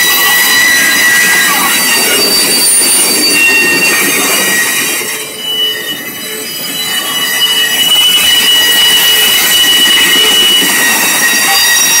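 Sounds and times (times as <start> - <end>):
train wheels squealing on rails: 0.0 - 12.0.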